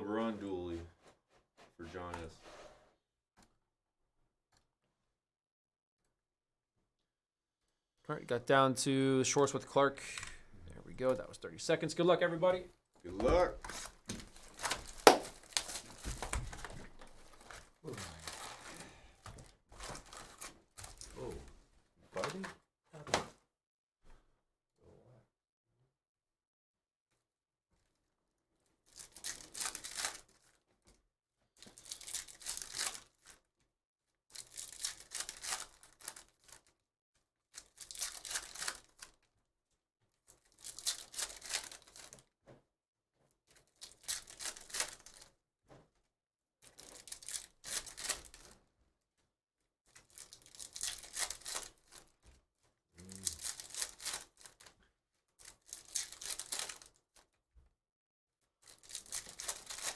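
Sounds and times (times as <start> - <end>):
cards being handled: 13.1 - 21.3, 37.6 - 39.1, 40.6 - 42.2, 43.8 - 45.3, 50.0 - 52.1, 58.7 - 59.9
card pack wrappers tearing: 13.6 - 19.0, 28.9 - 30.5, 31.7 - 33.3, 34.3 - 36.7, 37.6 - 39.1, 40.4 - 42.2, 43.7 - 45.3, 46.6 - 48.5, 49.9 - 52.1, 53.0 - 54.7, 55.4 - 57.0, 58.6 - 59.9
wrapper crinkling: 13.6 - 19.0, 19.8 - 21.2, 28.9 - 30.6, 31.6 - 33.4, 34.3 - 36.7, 37.5 - 39.2, 40.3 - 42.2, 43.6 - 45.3, 46.6 - 48.6, 49.9 - 52.1, 53.0 - 54.7, 55.4 - 57.0, 58.6 - 59.9.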